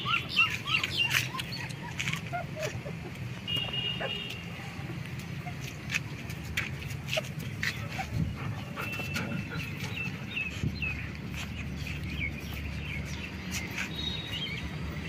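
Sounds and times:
puppies suckling clicks: 0.5 - 3.7.

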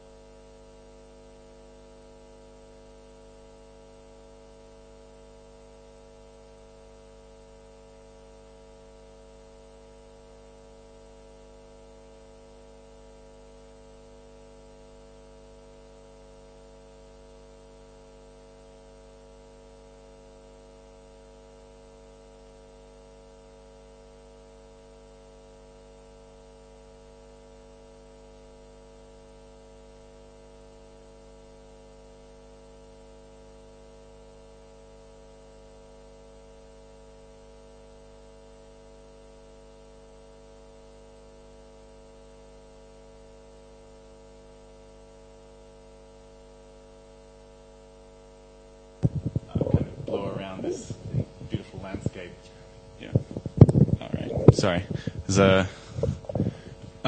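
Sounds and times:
electrical hum: 43.5 - 57.0
faint hiss: 54.0 - 57.0.

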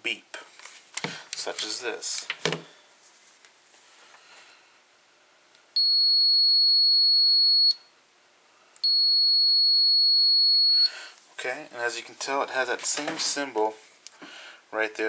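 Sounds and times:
high-pitched meter beep: 5.8 - 7.8, 8.8 - 10.9.

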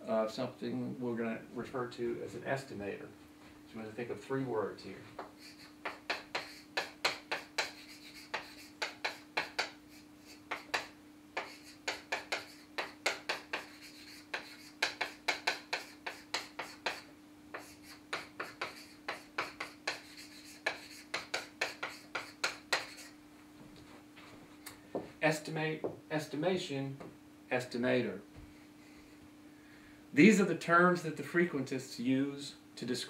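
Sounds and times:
chalk tapping and scraping: 4.9 - 23.2.

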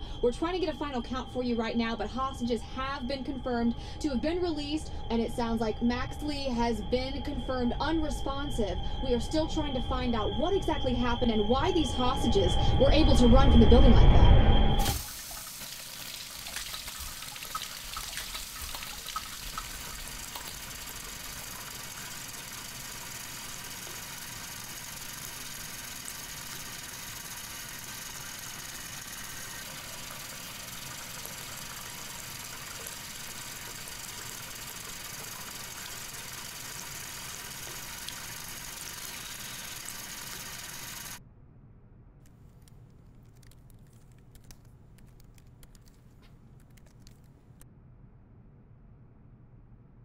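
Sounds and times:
tap running into sink: 14.8 - 22.2
small water splashes: 14.8 - 24.6, 28.1 - 41.2.

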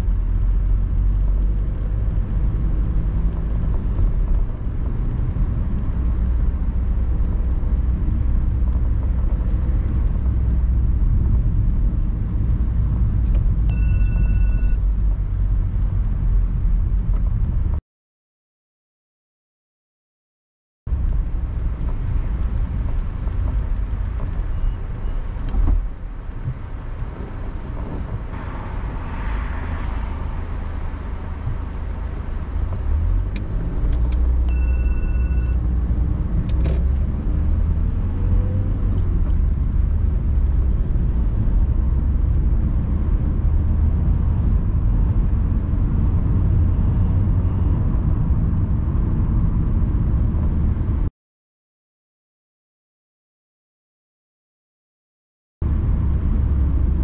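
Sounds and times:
car engine and road rumble: 0.0 - 17.8, 20.9 - 51.1, 55.6 - 57.0
short beep: 13.7 - 14.9, 34.5 - 35.6.

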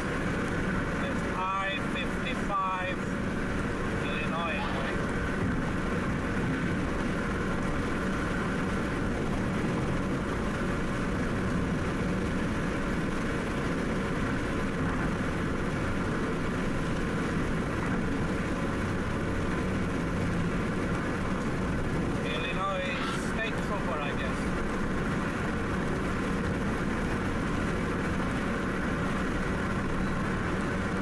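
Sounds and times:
car cabin road and engine noise: 0.0 - 31.0.

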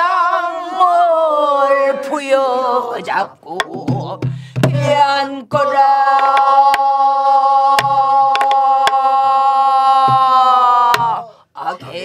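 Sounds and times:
group singing held note: 4.7 - 12.0.

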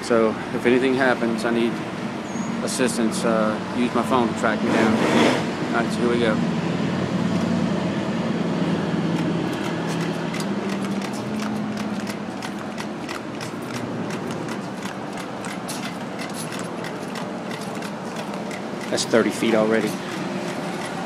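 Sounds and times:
measuring wheel rolling on concrete: 8.8 - 21.0
counter clicking: 9.1 - 21.0.

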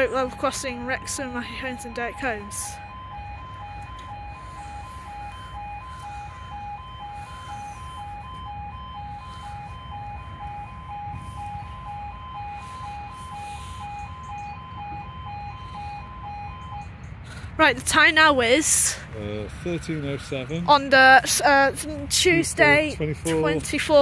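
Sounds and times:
two-tone warning alarm: 0.0 - 19.0, 19.7 - 24.0.

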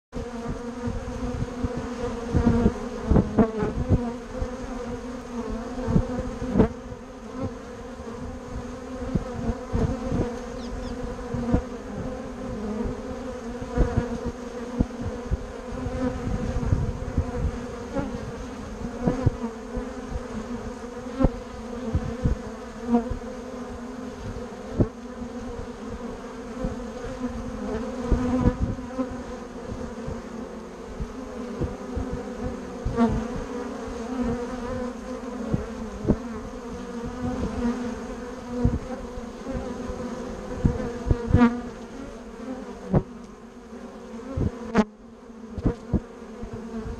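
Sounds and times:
bees buzzing: 0.2 - 46.9
low thumps: 21.2 - 22.4, 38.6 - 39.0.

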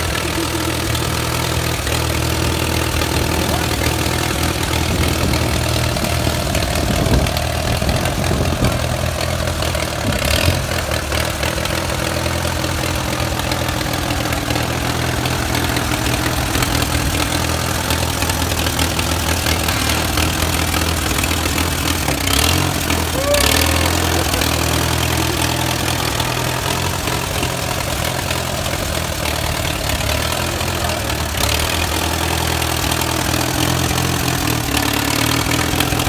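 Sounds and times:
tractor engine running: 0.0 - 36.0.

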